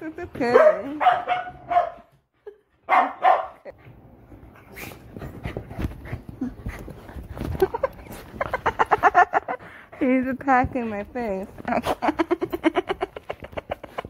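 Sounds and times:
dog barking: 0.5s - 2.1s, 2.9s - 3.7s.

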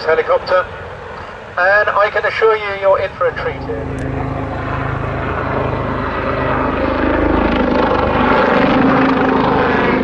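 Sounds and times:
helicopter rotor beating: 0.0s - 10.0s
helicopter turbine whine: 0.0s - 10.0s.

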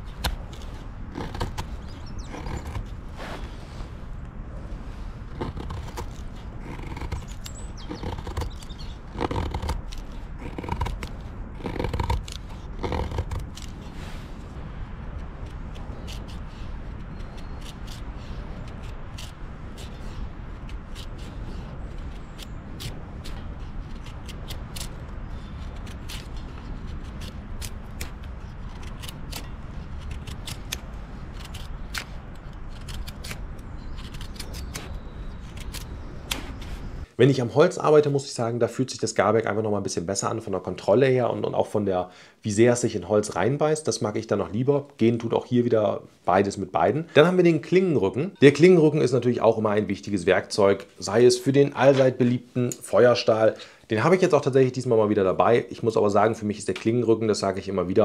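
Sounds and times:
knife scraping wood: 0.0s - 3.6s, 5.2s - 14.4s, 15.1s - 37.0s
steady low rumble: 0.0s - 41.6s.

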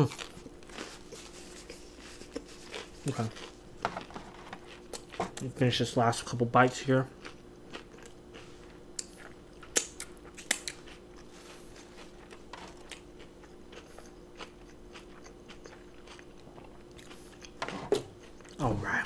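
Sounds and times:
person chewing: 0.0s - 5.6s, 7.0s - 19.0s.

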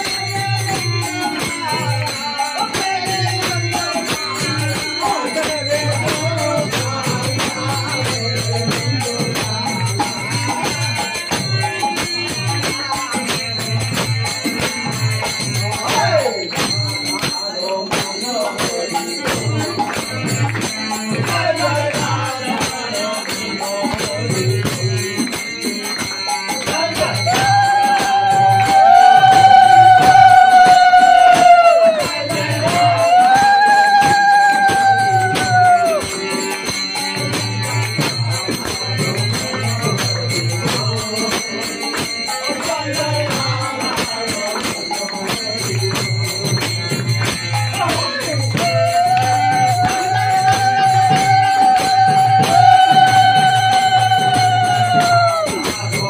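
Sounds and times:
chanting voices: 0.0s - 56.0s
drum beating a rhythm: 0.0s - 56.0s
hand cymbals: 0.0s - 56.0s
hand-clapping: 40.6s - 55.8s.

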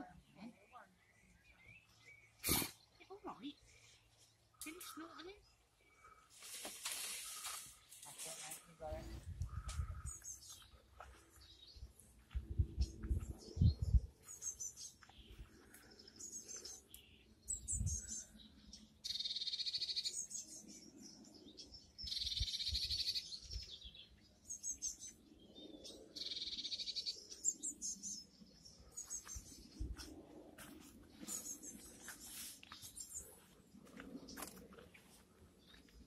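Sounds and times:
songbird trilling: 19.0s - 20.6s, 26.2s - 28.2s
high bird chirps: 19.0s - 20.7s.

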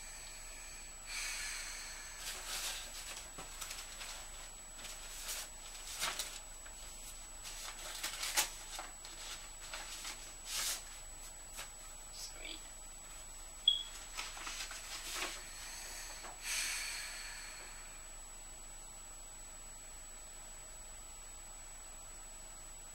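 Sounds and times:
paper rustling: 2.3s - 11.9s, 14.0s - 15.4s.

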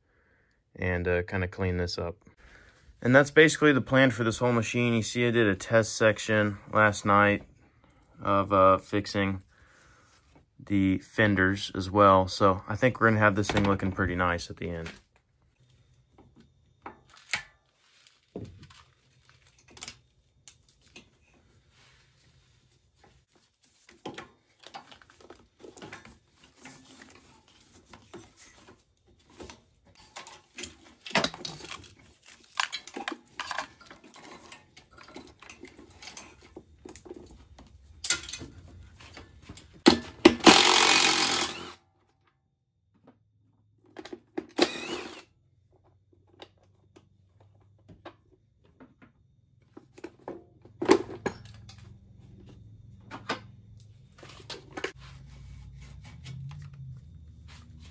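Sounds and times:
tools clinking on metal frame: 29.8s - 37.4s, 38.0s - 40.1s
cordless power tool running: 40.4s - 41.8s, 44.6s - 45.2s.

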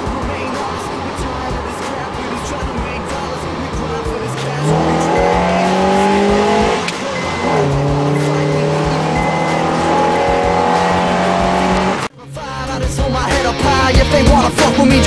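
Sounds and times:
car engine accelerating: 0.0s - 12.1s.

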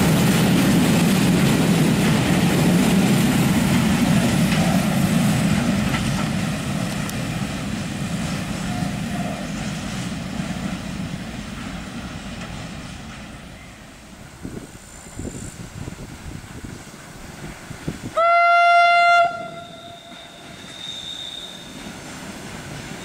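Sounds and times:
freight train wheels rumbling: 0.0s - 23.0s.

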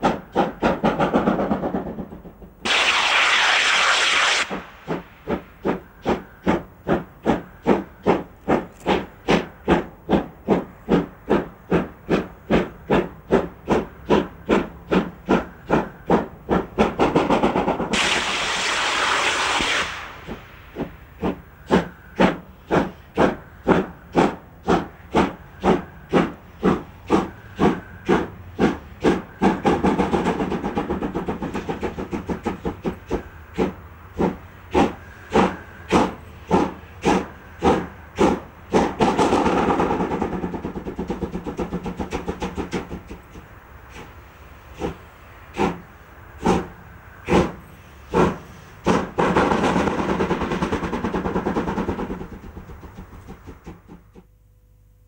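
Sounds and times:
steam locomotive chuffing: 0.0s - 54.3s
steam hissing: 2.6s - 53.8s.

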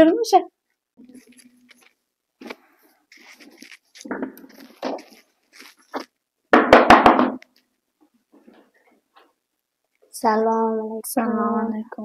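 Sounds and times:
soft scuffing: 1.2s - 6.1s.

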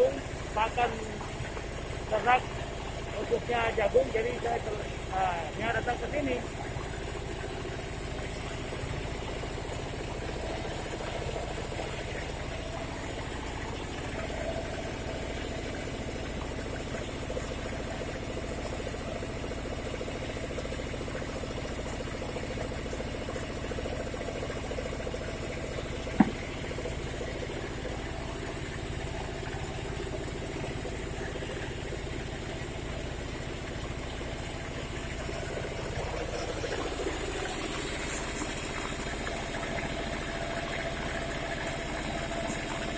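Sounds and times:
sharp knock: 26.2s - 26.5s.

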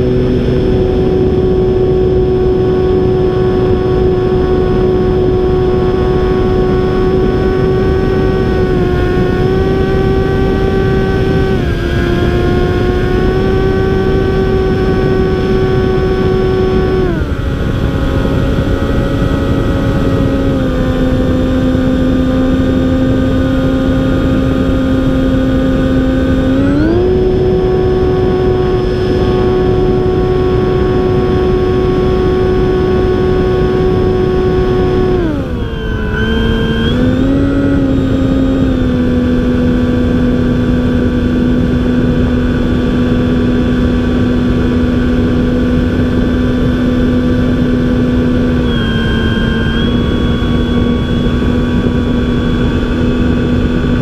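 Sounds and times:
electric motor and propeller hum: 0.0s - 54.0s.

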